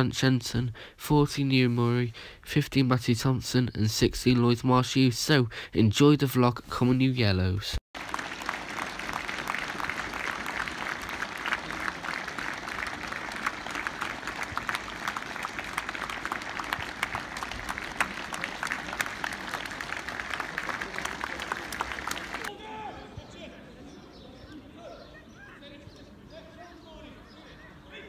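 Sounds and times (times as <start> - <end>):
crowd applauding: 8.0 - 22.5.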